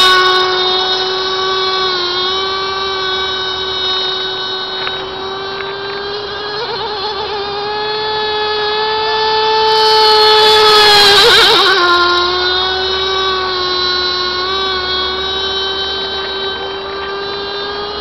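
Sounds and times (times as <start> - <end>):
model boat engine whine: 0.0 - 18.0.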